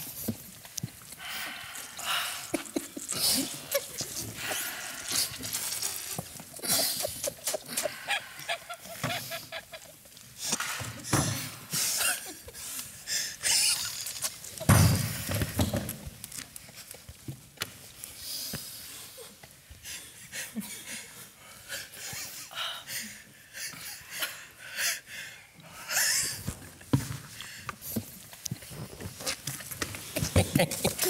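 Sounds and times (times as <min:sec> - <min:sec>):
people wheezing and snorting: 0:01.1 - 0:15.5, 0:18.5 - 0:28.1, 0:28.7 - 0:31.0
stifled laughter: 0:02.6 - 0:05.0, 0:06.6 - 0:10.2, 0:30.1 - 0:31.0.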